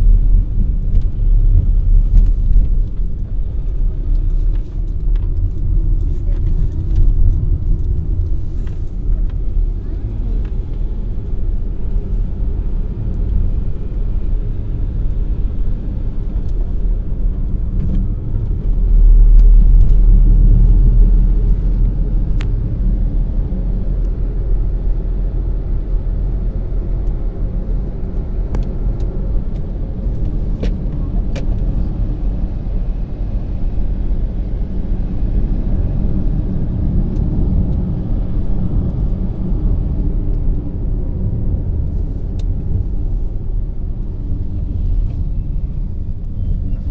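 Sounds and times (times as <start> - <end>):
car driving rumble: 0.0 - 46.9.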